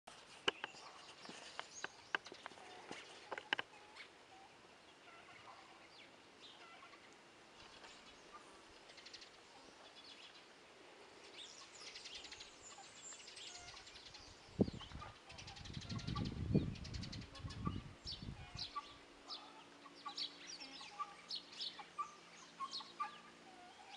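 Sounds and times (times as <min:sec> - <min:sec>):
faint bird chirps: 0:11.2 - 0:23.9.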